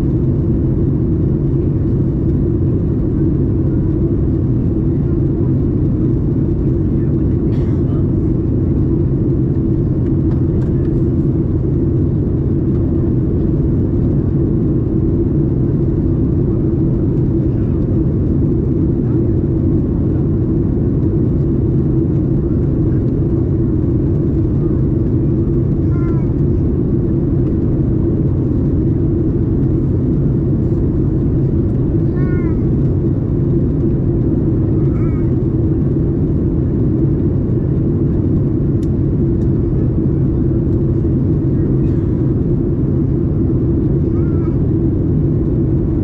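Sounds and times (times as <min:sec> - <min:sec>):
airplane cabin engine drone: 0:00.0 - 0:46.0.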